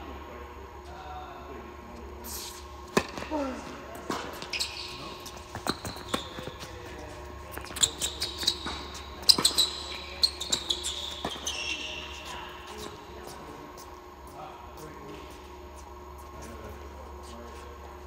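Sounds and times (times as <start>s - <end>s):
rackets striking tennis ball: 2.8s - 13.4s
ball bouncing on hard court: 2.9s - 13.4s
high thin shoe squeaks: 4.1s - 13.4s.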